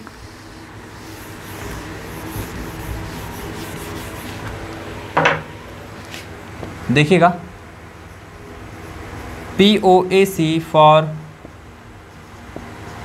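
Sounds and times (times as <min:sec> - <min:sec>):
duster scrubbing whiteboard: 0:00.0 - 0:05.1, 0:08.0 - 0:10.5, 0:11.8 - 0:13.0.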